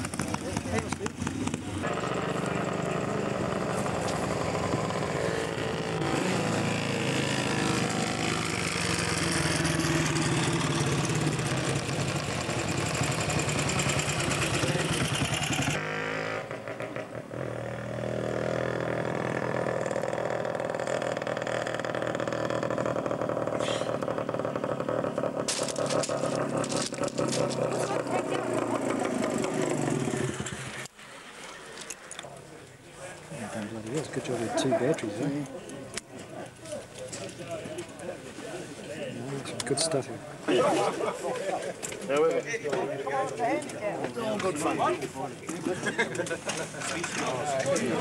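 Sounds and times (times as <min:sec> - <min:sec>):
distant engine drone: 0:00.0 - 0:30.9
motorcycle engines racing: 0:00.0 - 0:30.9, 0:33.2 - 0:48.0.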